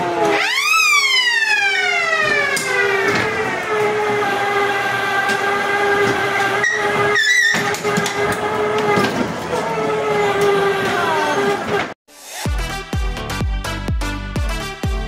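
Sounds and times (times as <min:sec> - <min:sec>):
siren-like wail: 0:00.0 - 0:11.7.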